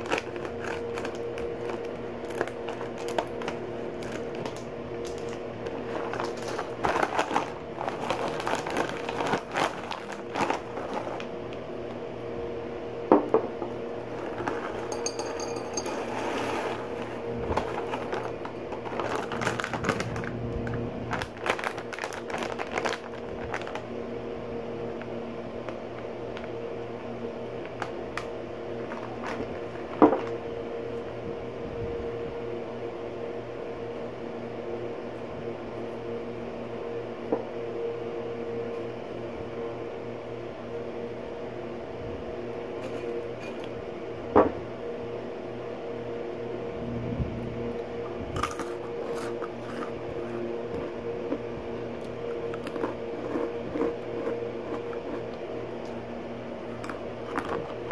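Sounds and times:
foil snack bag crinkling: 0:00.0 - 0:11.6, 0:14.1 - 0:24.0, 0:27.7 - 0:30.0, 0:48.4 - 0:56.0, 0:56.6 - 0:57.9
machine hum: 0:00.0 - 0:57.9.

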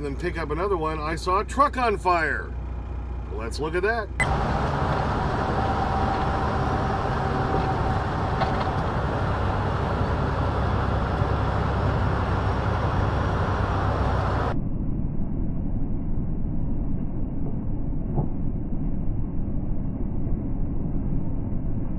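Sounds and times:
road noise: 0:00.0 - 0:14.6
truck engine drone: 0:00.0 - 0:21.9.

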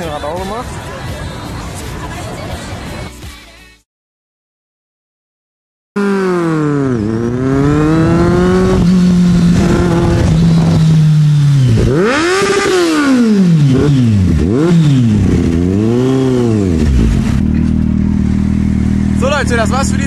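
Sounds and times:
motorcycle engine revving hard: 0:06.0 - 0:20.0.

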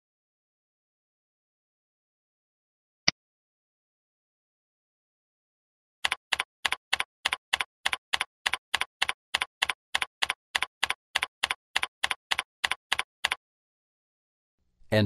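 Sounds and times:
keyboard typing: 0:06.0 - 0:13.4.

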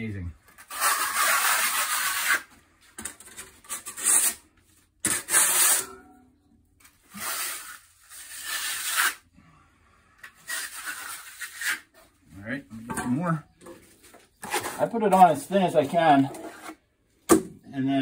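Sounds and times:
trowel scraping plaster: 0:00.5 - 0:02.5, 0:03.1 - 0:04.4, 0:05.0 - 0:06.0, 0:06.8 - 0:09.2, 0:10.2 - 0:12.2, 0:13.8 - 0:16.8.

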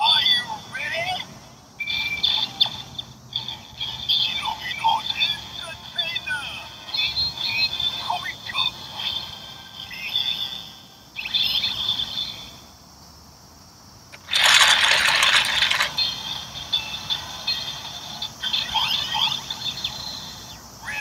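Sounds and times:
toy crank ratcheting rattle: 0:02.0 - 0:06.1, 0:14.2 - 0:20.4
electronic toy sound effects: 0:14.2 - 0:21.0.

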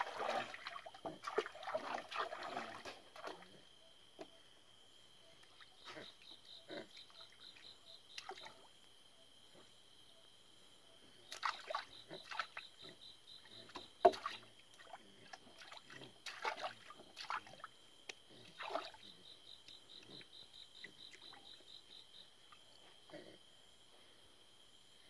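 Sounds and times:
water splashing in a tub: 0:00.0 - 0:03.6, 0:07.0 - 0:08.8, 0:11.3 - 0:12.8, 0:13.4 - 0:19.2
insects trilling: 0:00.0 - 0:25.0.

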